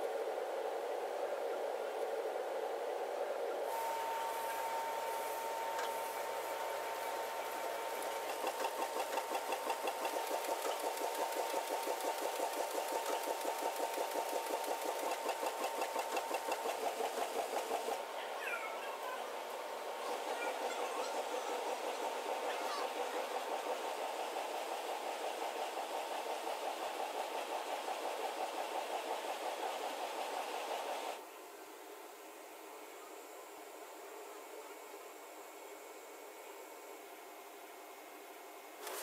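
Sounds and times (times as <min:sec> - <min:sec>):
printing press hum: 0:02.9 - 0:31.2.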